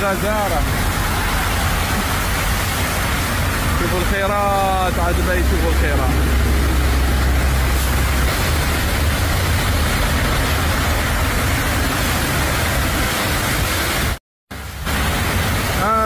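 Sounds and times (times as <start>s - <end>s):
car tyres spraying water: 0.0s - 16.0s
heavy rain: 0.0s - 16.0s
deep rumble: 4.6s - 13.4s.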